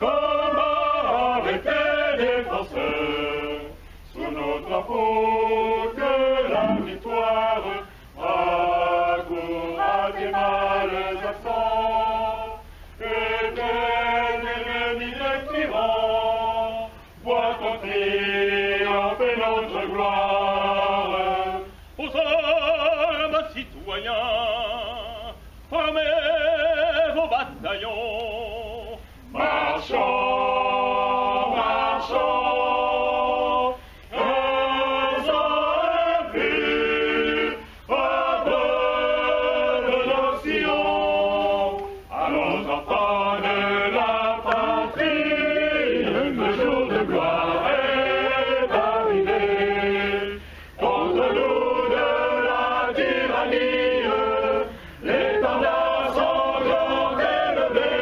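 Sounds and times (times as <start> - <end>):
choir singing: 0.0 - 58.0.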